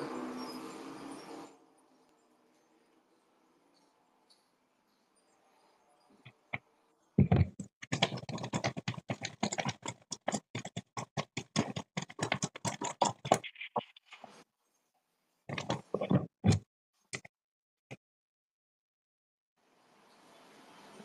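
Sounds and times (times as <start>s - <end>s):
vegetables rattling in shaken bowl: 7.8s - 13.8s.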